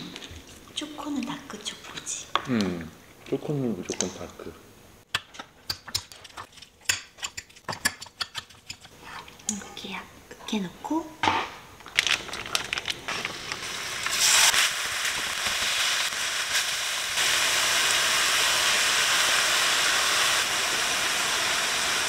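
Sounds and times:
meat sizzling in a wok: 13.1s - 22.0s.

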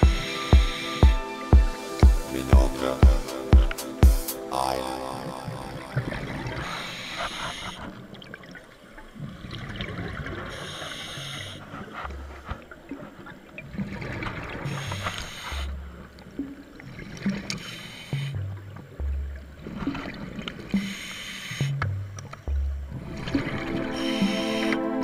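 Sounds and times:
regulator hissing inhalations: 0.0s - 4.5s
exhaled bubbles rumbling: 4.6s - 6.7s, 7.6s - 10.6s, 11.6s - 14.8s, 18.2s - 20.9s, 21.7s - 24.0s.

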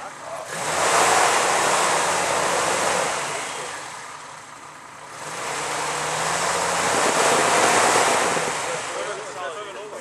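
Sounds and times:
off-road vehicle engine under load: 0.0s - 10.0s
heavy rushing noise: 5.8s - 9.2s.

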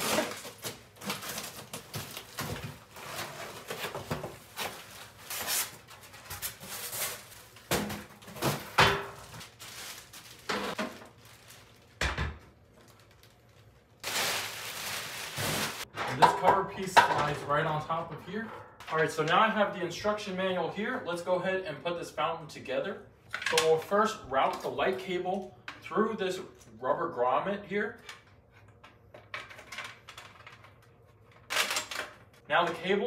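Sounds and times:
plastic wrap crinkling: 0.0s - 7.7s, 8.5s - 12.0s, 12.6s - 15.9s
cardboard rustling and scraping: 0.0s - 11.2s.

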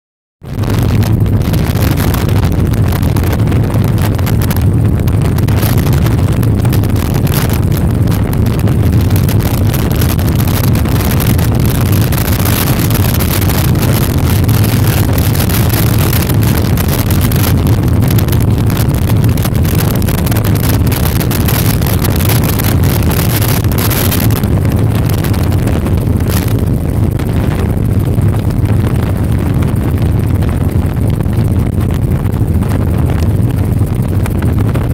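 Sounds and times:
helicopter engine and rotor drone: 0.4s - 34.9s.

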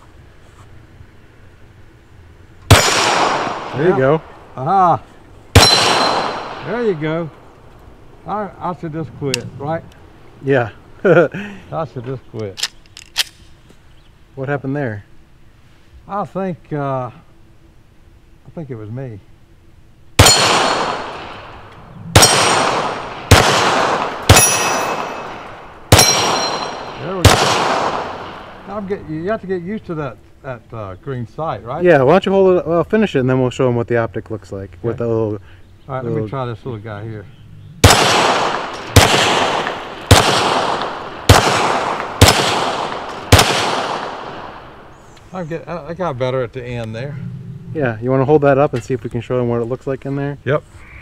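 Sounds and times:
steel target ringing: 2.7s - 3.6s, 5.5s - 7.2s, 20.2s - 21.4s, 22.1s - 28.5s
pistol shots: 2.7s - 4.2s, 5.5s - 7.2s, 20.2s - 28.7s, 37.8s - 44.9s.

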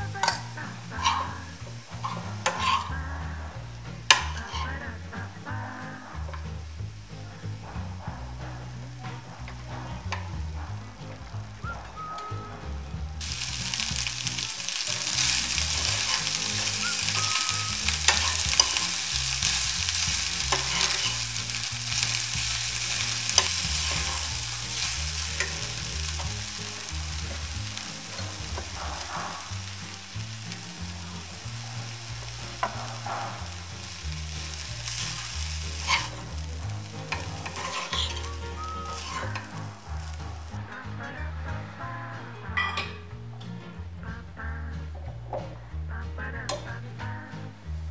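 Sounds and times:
rice sizzling in a frying pan: 0.0s - 4.8s, 13.2s - 40.6s.

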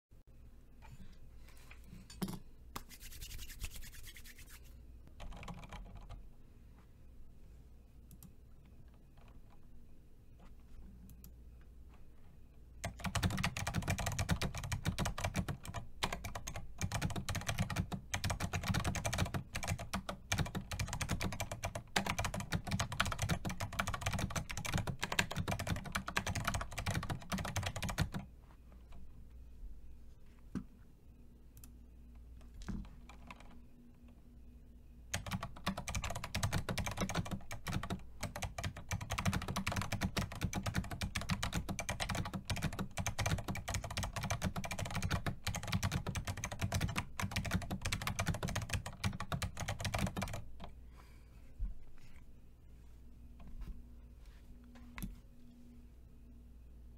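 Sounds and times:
fast typing on mechanical keyboard: 5.2s - 6.2s, 12.8s - 28.3s, 33.1s - 33.5s, 35.1s - 50.7s.

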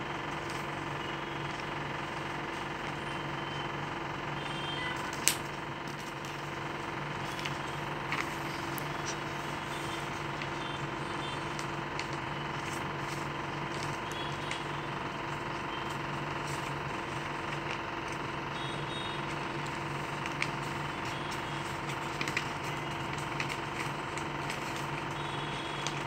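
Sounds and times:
low mechanical hum with hiss: 0.0s - 26.0s
paper being creased and folded: 5.0s - 18.6s, 19.2s - 26.0s.

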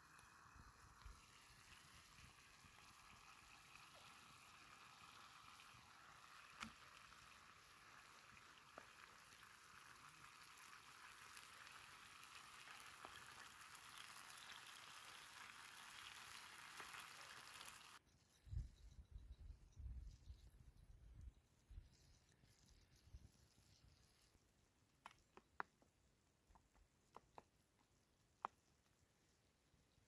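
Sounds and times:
faint stew bubbling: 0.0s - 18.0s
small ticks: 0.0s - 24.4s.

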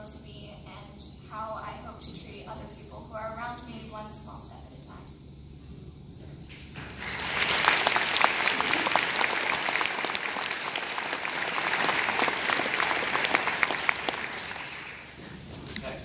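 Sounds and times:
audience applauding: 6.7s - 15.3s.

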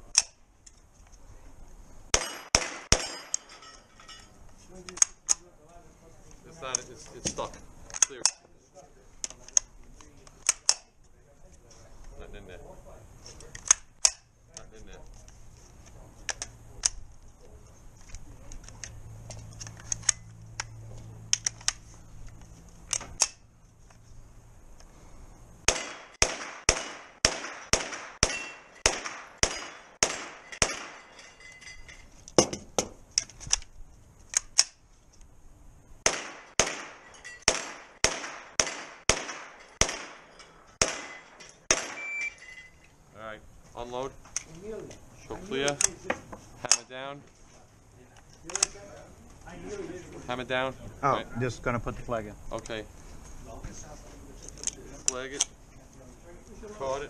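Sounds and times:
carbine gunshots: 2.1s - 3.4s, 25.6s - 31.1s, 36.0s - 42.3s.

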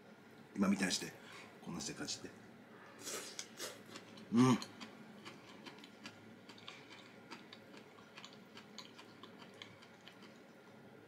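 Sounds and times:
man chewing food: 3.0s - 10.8s.

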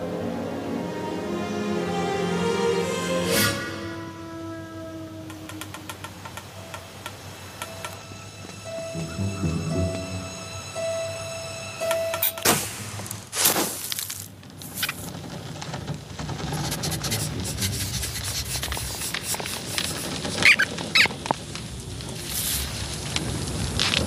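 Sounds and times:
steady rustling: 13.7s - 21.8s
short high squeaks: 19.7s - 21.2s.

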